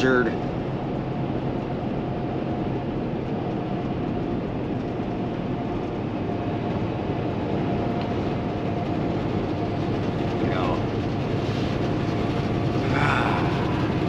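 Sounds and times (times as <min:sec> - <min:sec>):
diesel engine drone: 0:00.0 - 0:14.0
faint steady whine: 0:00.0 - 0:14.0
truck passing: 0:11.2 - 0:14.0.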